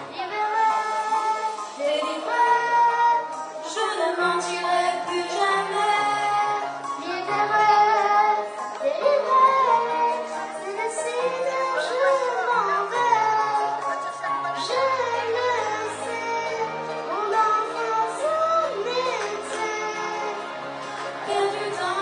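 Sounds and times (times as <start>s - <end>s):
girls singing into microphones: 0.0s - 22.0s.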